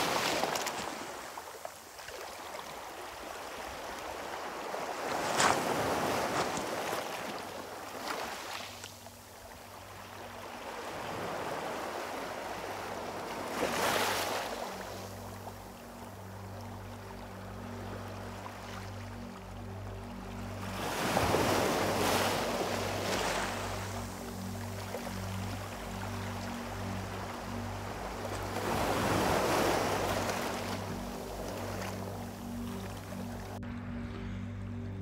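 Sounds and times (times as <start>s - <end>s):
low steady hum of held tones: 8.7s - 35.0s.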